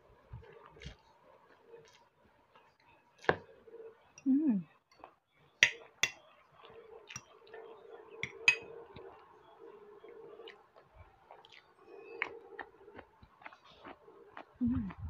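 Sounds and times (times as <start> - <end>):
fork clinking on glass plate: 8.2 - 8.7.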